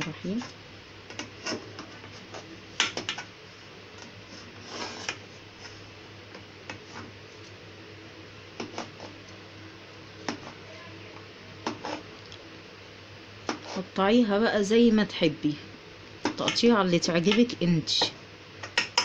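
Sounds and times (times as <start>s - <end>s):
low steady hum: 0.0s - 19.0s
knife cutting cake: 8.6s - 9.2s, 11.6s - 12.1s.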